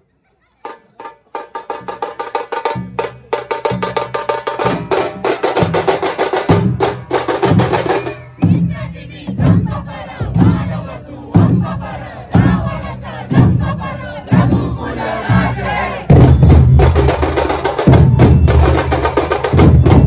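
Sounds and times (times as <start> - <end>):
deep drum beats: 1.4 - 20.0
fast dense drumming: 9.4 - 20.0.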